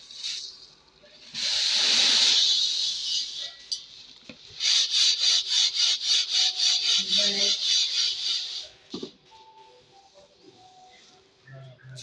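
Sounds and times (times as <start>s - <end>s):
bowl of grain shaken swishing: 4.6s - 8.7s.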